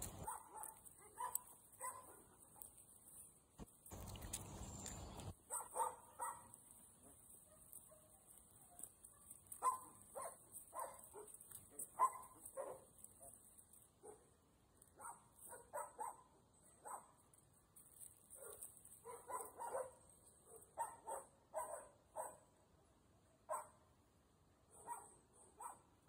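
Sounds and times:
dog barking faintly: 0:00.0 - 0:02.7, 0:05.5 - 0:13.4.

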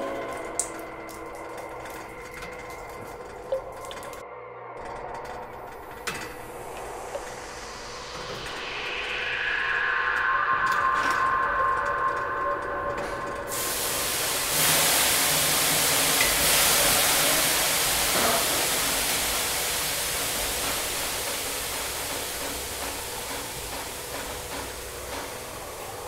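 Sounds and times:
hissing rush of noise: 0:05.3 - 0:26.0.

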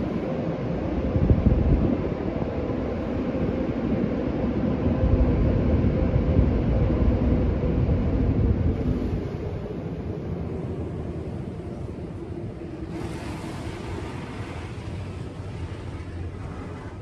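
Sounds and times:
faint steady hum: 0:00.0 - 0:17.0
water spray rushing on car: 0:12.7 - 0:17.0.

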